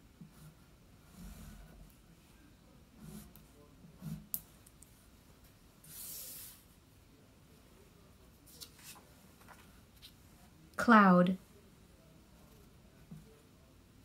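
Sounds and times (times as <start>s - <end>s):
card sliding across wooden table: 5.8s - 6.7s.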